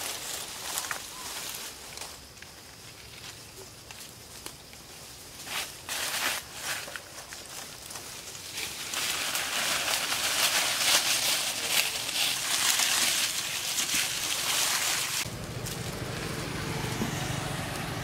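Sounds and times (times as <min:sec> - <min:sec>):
footsteps on dry leaves: 0:00.0 - 0:17.9.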